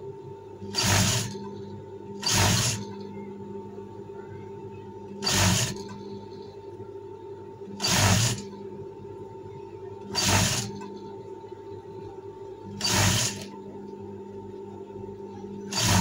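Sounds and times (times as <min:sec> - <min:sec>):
sewing machine stitching: 0:00.7 - 0:01.4, 0:02.2 - 0:02.9, 0:05.2 - 0:06.0, 0:07.8 - 0:08.5, 0:10.1 - 0:10.8, 0:12.8 - 0:13.5, 0:15.7 - 0:16.0.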